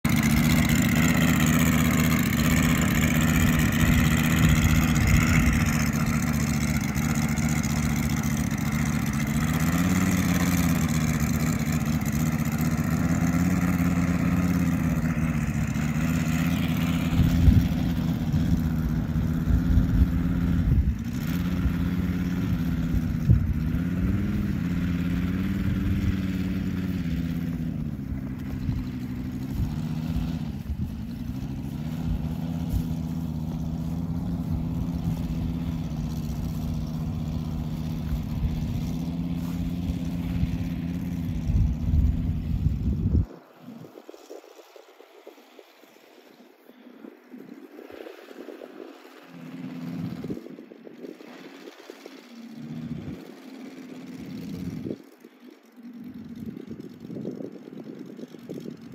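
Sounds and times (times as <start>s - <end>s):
model plane radial engine running: 0.0s - 58.9s
wind buffeting microphone: 0.1s - 55.4s, 56.1s - 58.9s.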